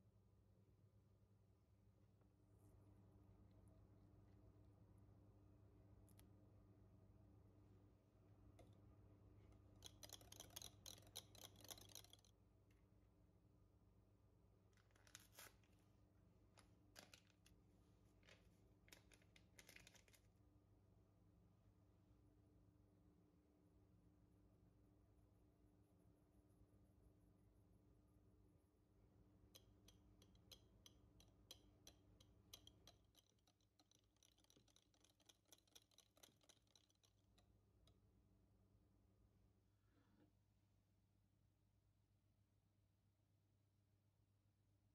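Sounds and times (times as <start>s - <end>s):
whisk clicking against glass bowl: 9.8s - 12.3s, 29.6s - 38.0s.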